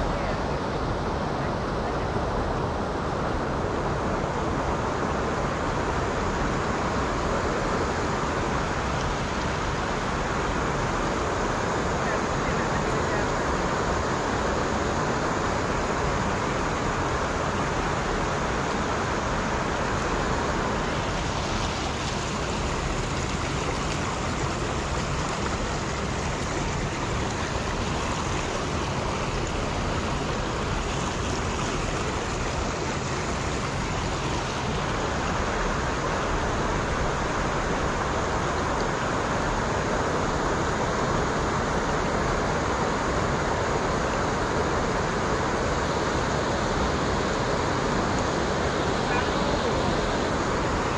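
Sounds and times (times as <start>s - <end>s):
stream water rushing: 0.0s - 50.9s
water spilling over weir: 16.7s - 41.9s.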